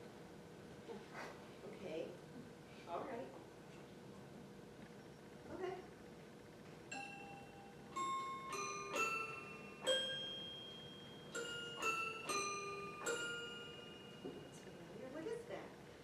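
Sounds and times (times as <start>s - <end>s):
toy piano notes: 6.9s - 14.8s.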